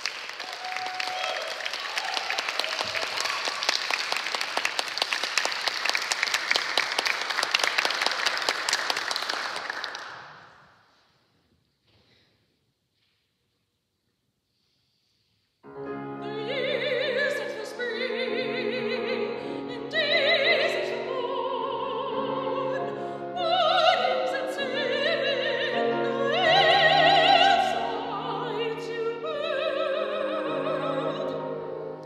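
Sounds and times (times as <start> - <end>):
grand piano: 15.6 - 32.0
soprano singing with vibrato: 15.8 - 32.0.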